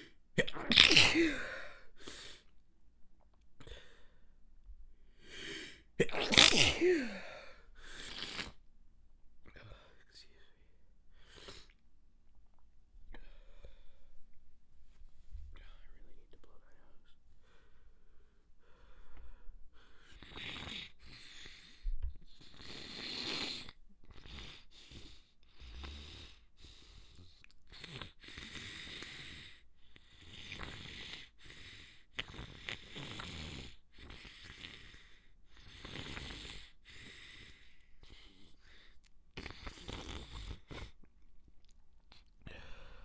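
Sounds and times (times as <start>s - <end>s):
congested nasal breathing: 7.1s - 8.6s, 17.4s - 41.1s.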